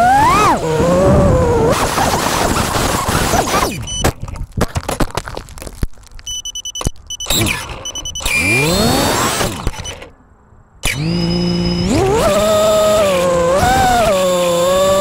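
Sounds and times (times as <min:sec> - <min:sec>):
stuttering motor bursts: 0:00.0 - 0:03.8, 0:07.2 - 0:10.1, 0:10.8 - 0:15.0
drone motor whines: 0:00.0 - 0:04.0, 0:07.2 - 0:10.1, 0:10.8 - 0:15.0
high beeping tones: 0:06.2 - 0:10.0.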